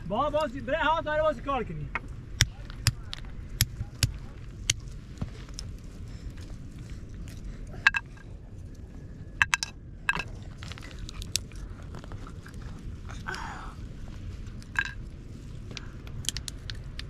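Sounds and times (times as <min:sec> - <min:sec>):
walnut shells cracking: 0:07.8 - 0:08.2, 0:09.4 - 0:12.2, 0:14.5 - 0:15.0, 0:15.7 - 0:17.0.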